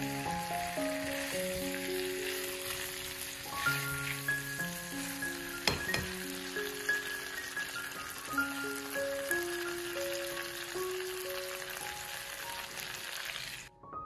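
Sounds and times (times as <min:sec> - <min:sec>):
food sizzling in frying pan: 0:00.0 - 0:13.7
gentle background music: 0:00.0 - 0:14.0.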